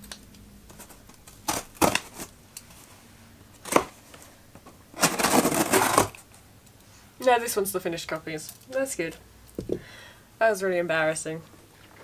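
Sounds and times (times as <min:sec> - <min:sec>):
scissors snipping packing tape: 0:00.0 - 0:02.3, 0:05.0 - 0:06.2.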